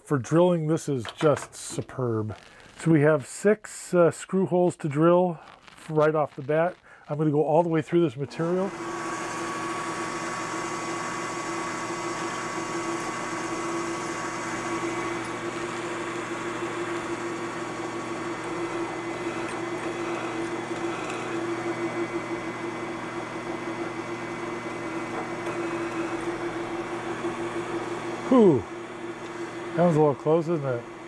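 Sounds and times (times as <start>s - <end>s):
drill boring through metal: 8.2s - 31.0s
milling machine spindle running: 8.3s - 31.0s.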